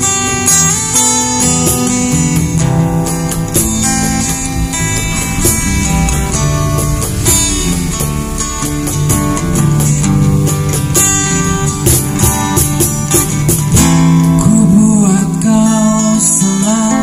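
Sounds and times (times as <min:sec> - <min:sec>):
cajon strokes: 0:00.0 - 0:14.6
electric guitar: 0:00.0 - 0:17.0
strummed acoustic guitar: 0:00.0 - 0:17.0
person singing: 0:14.1 - 0:17.0.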